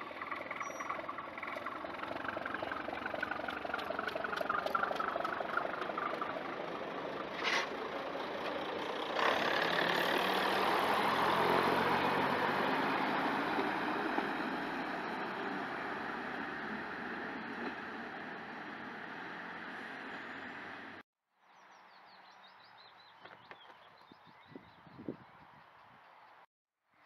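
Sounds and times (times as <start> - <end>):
diesel railcar engine: 0.0 - 21.0.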